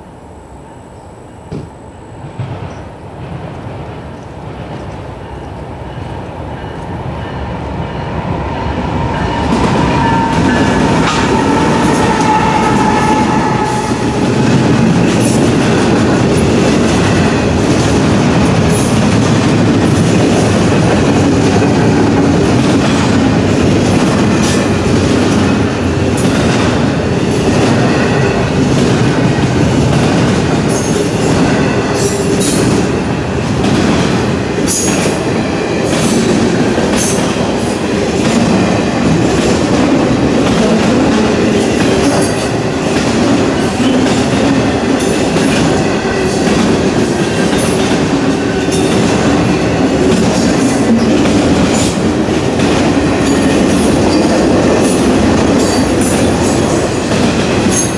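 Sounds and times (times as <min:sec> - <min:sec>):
freight train rumble: 0:00.0 - 0:57.9.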